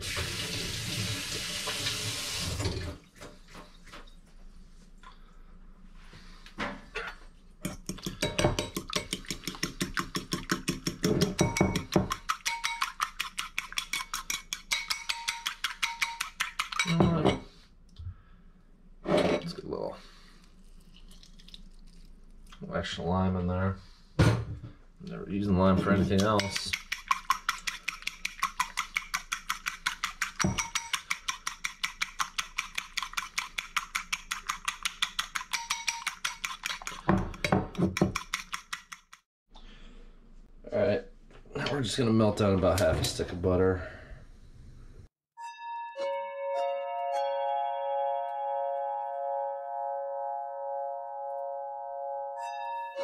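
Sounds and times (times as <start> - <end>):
whisk clinking against bowl: 7.6 - 17.4, 25.9 - 39.2.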